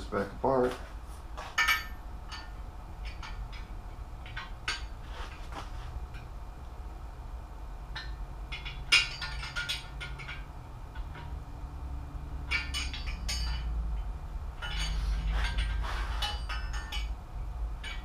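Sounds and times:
steady low hum: 0:00.0 - 0:18.0
metal tools clicking and clinking: 0:01.5 - 0:05.5, 0:08.0 - 0:11.4, 0:12.4 - 0:17.2, 0:17.8 - 0:18.0.

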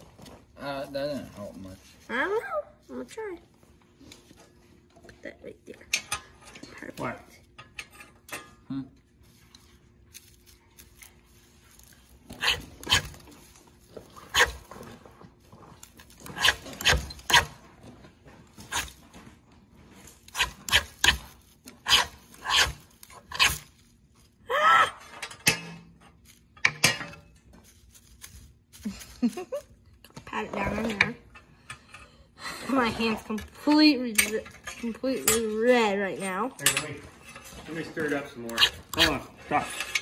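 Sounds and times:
knife scraping dry tinder: 0:10.1 - 0:13.5, 0:14.2 - 0:14.7, 0:15.8 - 0:17.6, 0:18.6 - 0:19.0, 0:20.1 - 0:23.9, 0:37.3 - 0:40.0.

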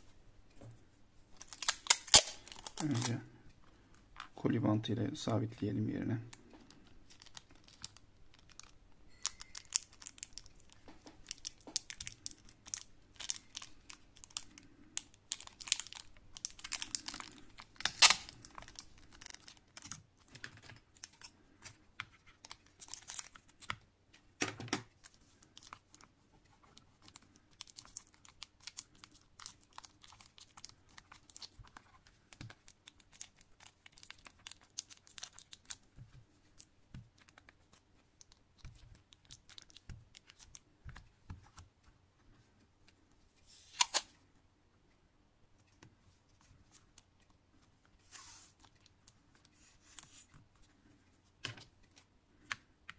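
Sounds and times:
plastic tape crinkling and crackling: 0:01.3 - 0:03.3, 0:04.2 - 0:23.9, 0:24.8 - 0:41.9, 0:45.6 - 0:52.5
packing tape pulled off roll: 0:15.3 - 0:19.8.

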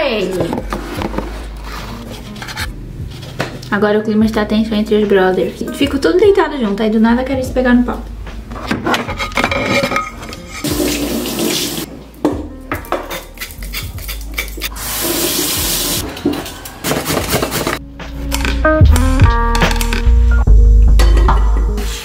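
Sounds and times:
kitchen tap running: 0:10.6 - 0:11.9, 0:14.7 - 0:16.0.

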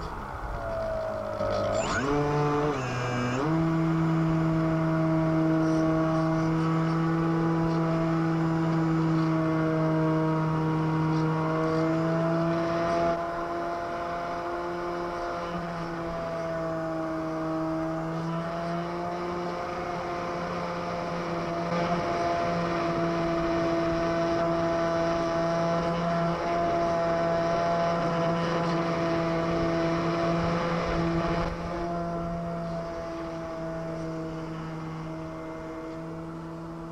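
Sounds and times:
model plane motor whine: 0:00.6 - 0:04.9.

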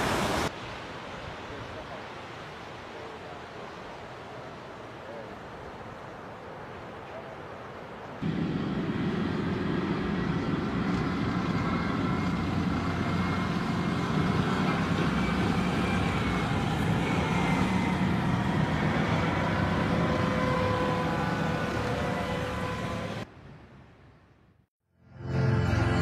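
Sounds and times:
low engine drone: 0:08.2 - 0:23.2.

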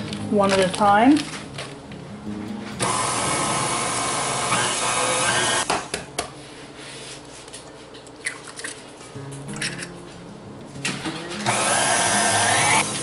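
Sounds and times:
stand mixer motor whine: 0:02.8 - 0:05.7, 0:11.5 - 0:13.0.

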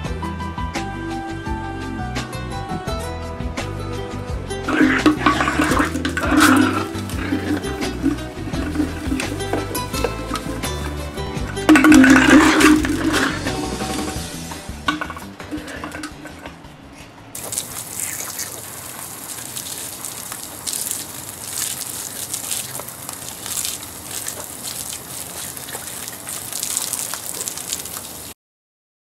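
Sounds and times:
water splashing onto concrete: 0:04.7 - 0:16.6, 0:17.4 - 0:28.4.

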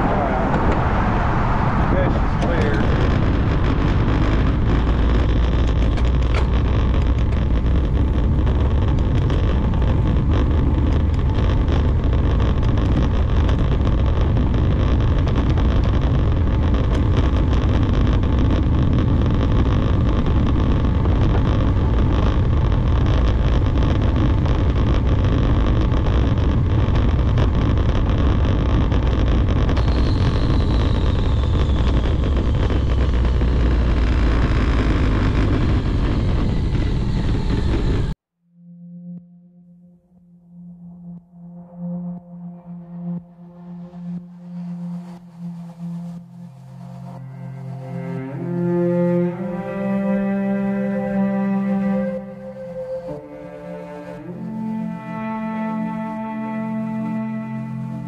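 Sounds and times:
wind on camera microphone: 0:00.0 - 0:38.2.

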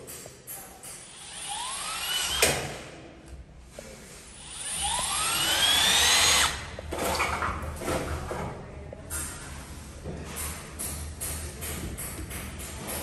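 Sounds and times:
electric drill whine: 0:04.5 - 0:06.6.

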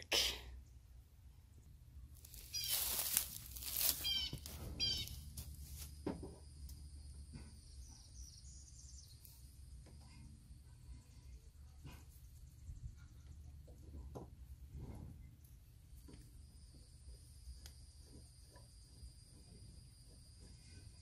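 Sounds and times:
high insect trill: 0:02.2 - 0:07.2
bird chirping: 0:02.4 - 0:03.1, 0:04.0 - 0:05.3, 0:07.6 - 0:09.5.

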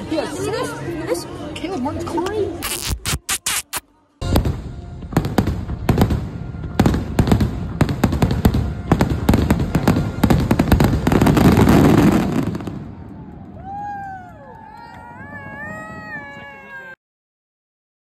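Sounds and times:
fireworks bangs: 0:02.6 - 0:13.5
fireworks crackle and rumble: 0:02.6 - 0:16.9.

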